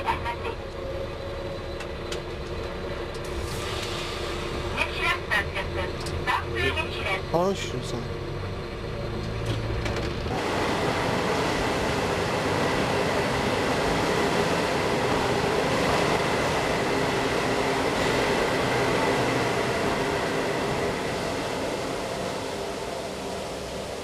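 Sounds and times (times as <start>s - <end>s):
train wash machinery running: 10.3s - 14.0s.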